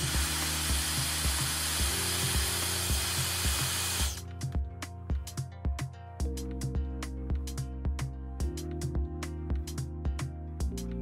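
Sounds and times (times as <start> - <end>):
hair dryer blowing: 0.0 - 4.2
background music with beat: 0.0 - 11.0.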